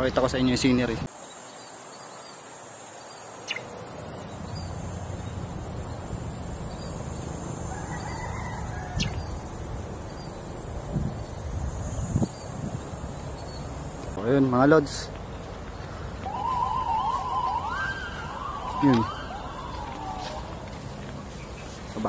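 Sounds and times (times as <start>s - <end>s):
high insect drone: 0.4s - 14.8s.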